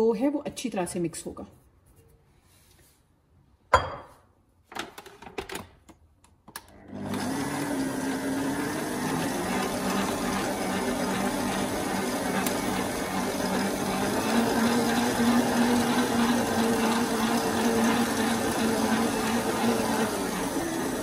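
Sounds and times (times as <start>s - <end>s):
stand mixer motor hum: 6.7s - 21.0s.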